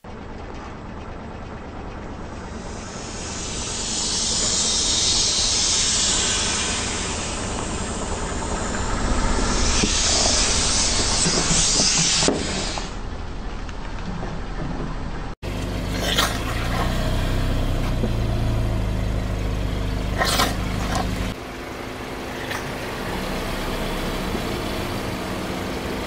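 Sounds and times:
low rumble of car: 0.0s - 26.0s
air hissing out of inflatable toys: 2.6s - 13.0s.

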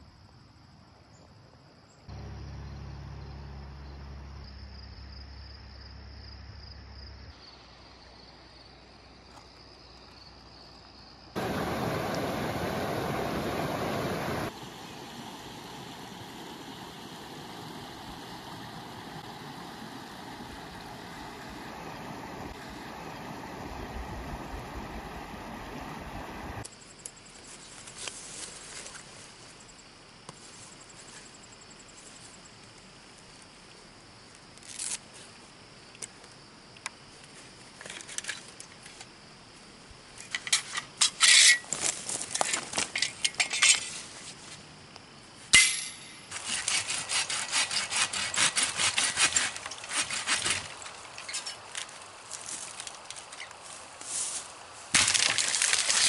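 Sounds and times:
steady rushing noise: 11.4s - 26.6s.

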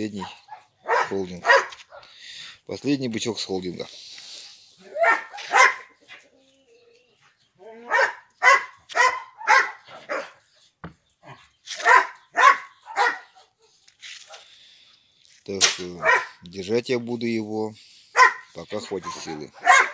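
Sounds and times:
dog barking: 0.2s - 2.1s, 4.9s - 6.0s, 7.8s - 10.4s, 11.8s - 13.6s, 16.0s - 16.4s, 18.1s - 19.9s.

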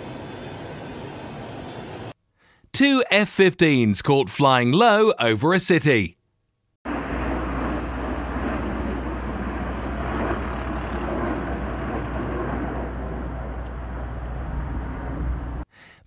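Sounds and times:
fighter jets flying overhead: 0.0s - 2.2s, 6.9s - 15.6s.

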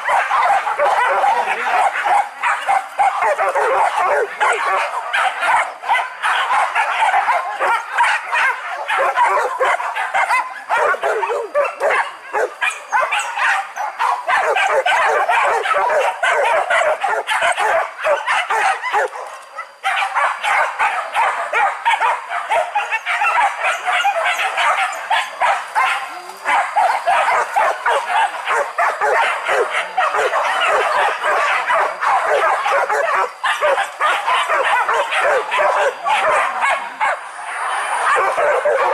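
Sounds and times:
dogs barking and yelping: 0.0s - 38.9s.

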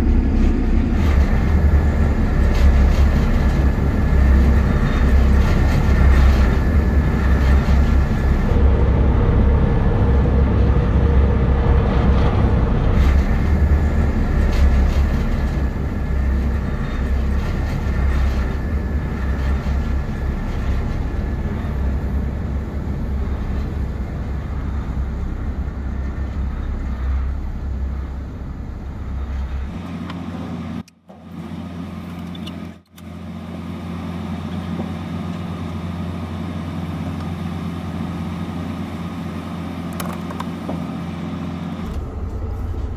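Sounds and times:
ferry engine rumble: 0.0s - 42.9s.

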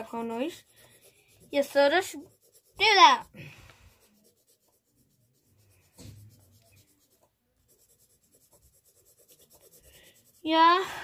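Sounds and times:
pencil scratching on paper: 0.0s - 11.0s.

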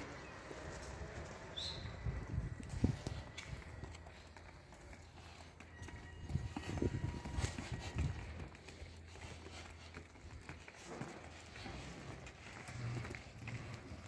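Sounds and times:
hooves clopping on pavement: 0.0s - 14.0s.

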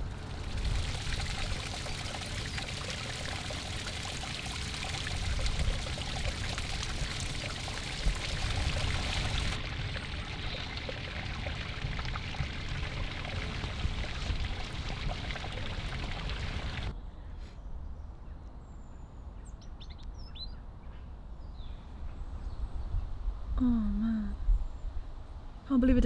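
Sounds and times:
stream water running: 0.0s - 16.9s.

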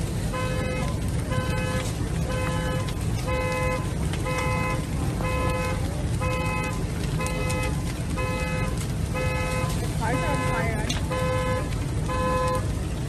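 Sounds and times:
steady low rumble: 0.0s - 13.0s
car alarm horn honking: 0.3s - 12.7s.

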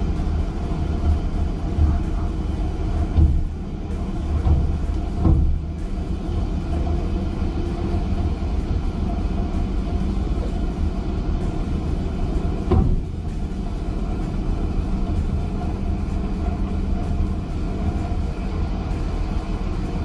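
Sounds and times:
engine and winch rumble: 0.0s - 20.0s.

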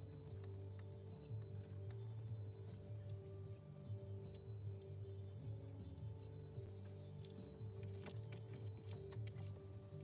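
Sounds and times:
ambient music with held tones: 0.0s - 10.0s.

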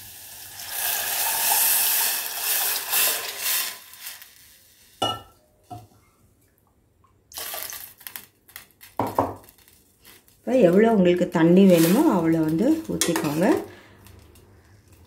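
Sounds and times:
liquid pouring into a pot: 0.1s - 4.2s.

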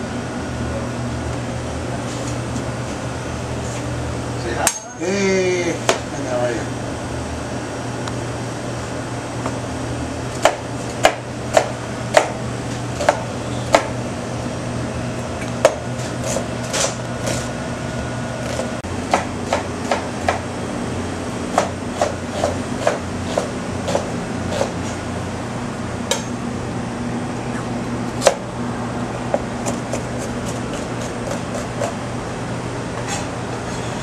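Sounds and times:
steady low hum: 0.0s - 34.0s
knife chopping on cutting board: 10.4s - 12.4s, 13.0s - 13.9s, 18.4s - 20.4s, 21.5s - 24.7s, 29.6s - 32.0s.

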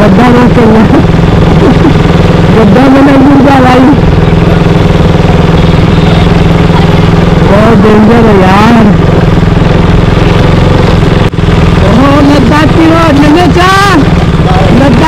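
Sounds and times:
vehicle engine running: 0.0s - 15.0s
person's voice: 2.5s - 4.0s, 11.8s - 15.0s.

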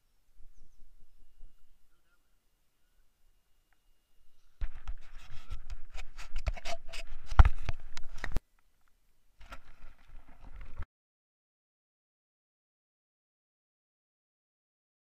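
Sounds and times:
knocks and scrapes on camera housing: 4.6s - 8.4s
water splashing: 9.4s - 10.8s.

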